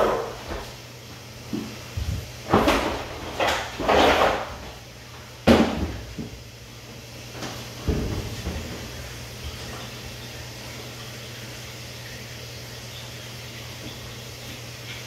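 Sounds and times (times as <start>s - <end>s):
knocks and clatters at washer: 0.0s - 0.8s, 1.5s - 6.5s, 7.3s - 11.0s.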